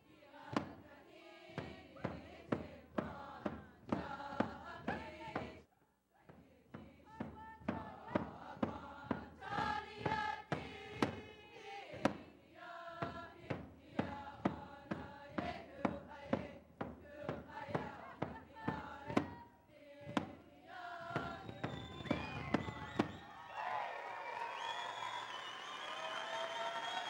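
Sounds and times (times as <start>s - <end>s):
group singing in unison: 0.0s - 23.2s
frame drum beat: 1.5s - 5.6s, 6.7s - 12.3s, 13.0s - 23.2s.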